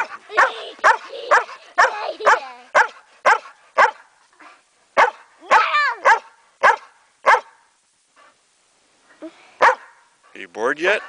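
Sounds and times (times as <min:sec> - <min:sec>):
dog yelping: 0:00.0 - 0:04.0, 0:05.0 - 0:07.6, 0:09.6 - 0:10.0
dog barking: 0:00.0 - 0:04.1, 0:05.0 - 0:07.7, 0:09.6 - 0:10.1.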